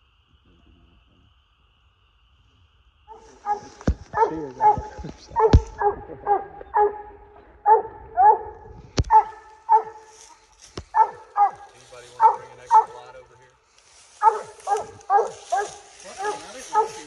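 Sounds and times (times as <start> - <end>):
dog barking: 3.1 - 10.1, 10.9 - 13.1, 14.2 - 17.0.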